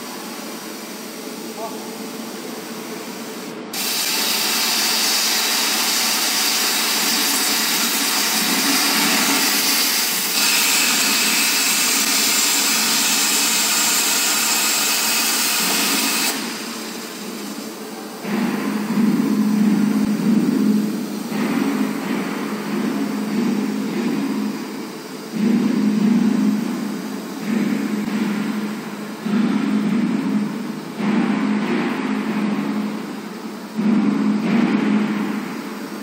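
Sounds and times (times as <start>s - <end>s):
background machine noise: 0.0s - 36.0s
plasma torch cutting hiss: 3.1s - 17.7s.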